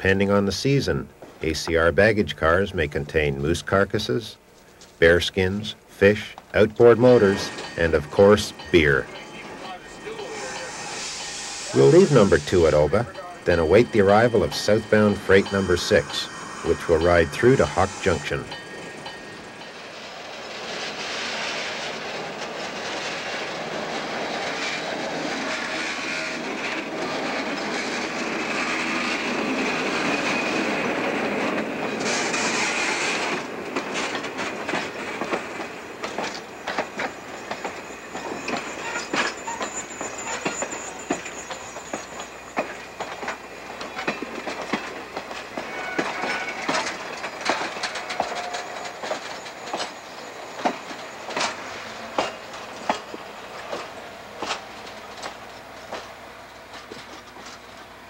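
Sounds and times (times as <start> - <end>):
diesel locomotive engine: 0.0 - 58.0
faint high wheel squeal: 6.8 - 20.0, 34.7 - 54.0
wheel clicks over rail joints: 42.6 - 50.0.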